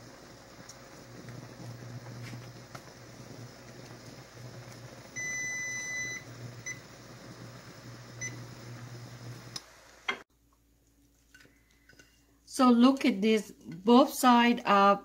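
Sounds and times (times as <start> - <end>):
water bubbling in skillet: 0.0 - 10.2.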